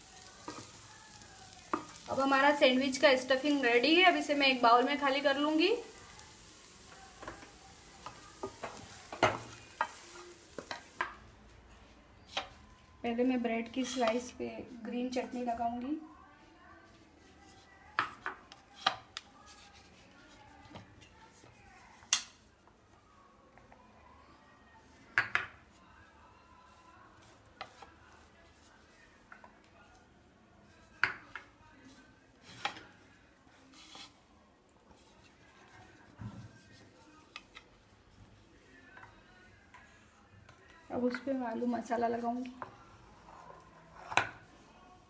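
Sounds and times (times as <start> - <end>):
pan sizzling faintly: 0.0 - 11.3
spatula scraping frying pan: 33.7 - 34.2, 43.0 - 44.6.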